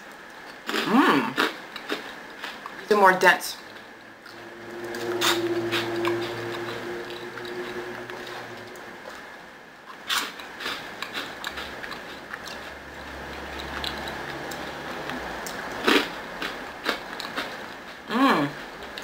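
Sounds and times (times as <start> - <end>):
faint steady hum: 0.0 - 19.0
crunchy snack chewing: 10.0 - 12.7, 15.4 - 17.6.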